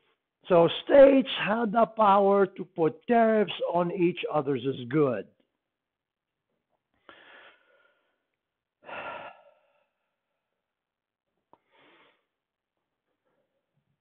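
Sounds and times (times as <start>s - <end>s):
man breathing: 7.0s - 10.4s, 11.6s - 12.4s.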